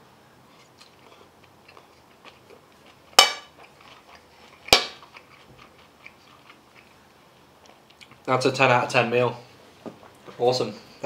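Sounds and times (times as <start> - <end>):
chewing: 0.5 - 8.3.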